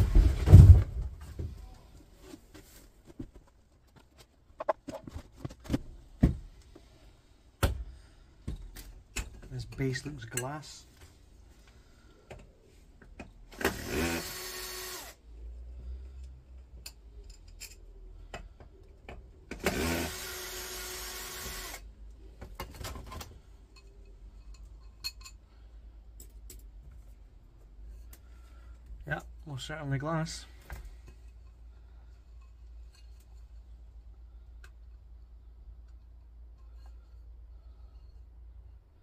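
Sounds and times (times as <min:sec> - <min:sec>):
cordless drill spinning: 0:13.5 - 0:15.2, 0:19.6 - 0:21.8.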